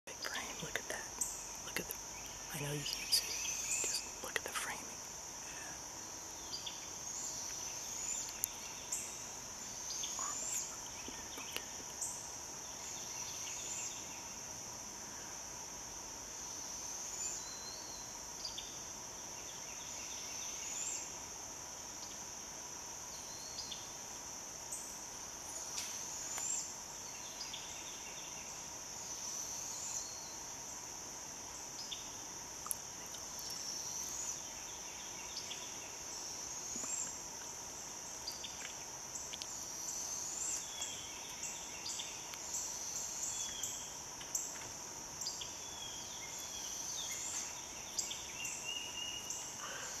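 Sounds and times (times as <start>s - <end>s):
insect chorus drone: 0.1s - 50.0s.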